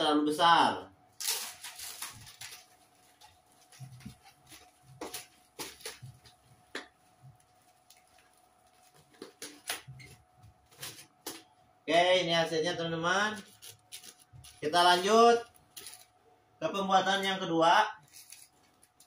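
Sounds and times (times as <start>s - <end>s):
faint steady hum: 0.0s - 19.0s
plastic bag crinkling: 1.2s - 11.5s, 13.2s - 16.2s, 18.0s - 19.0s.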